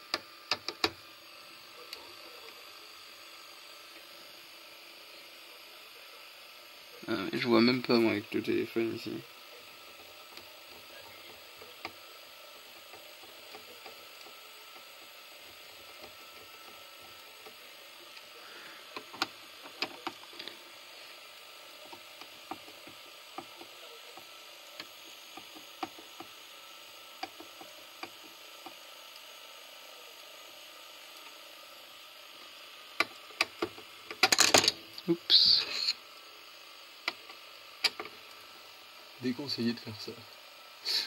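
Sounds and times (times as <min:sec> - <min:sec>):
tape transport whirring: 0:06.8 - 0:29.3.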